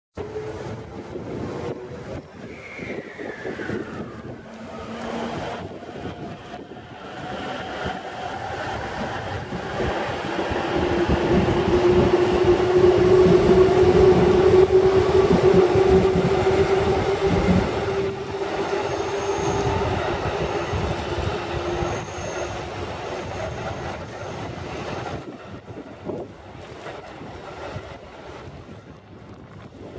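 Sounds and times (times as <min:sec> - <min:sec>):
train wheels rumbling: 0:00.2 - 0:29.9
electric train motor whine: 0:10.8 - 0:24.2.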